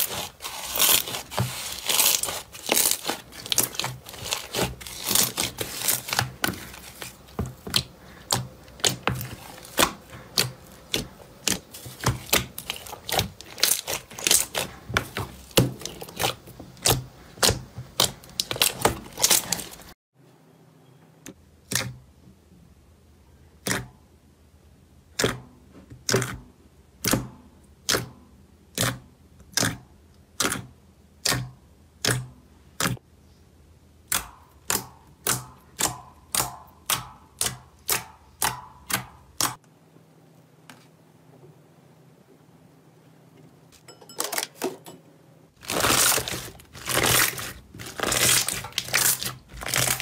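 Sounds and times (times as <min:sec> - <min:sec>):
slime squishing: 0:00.0 - 0:20.0, 0:25.1 - 0:27.2, 0:27.8 - 0:33.0, 0:34.0 - 0:39.6, 0:45.6 - 0:50.0.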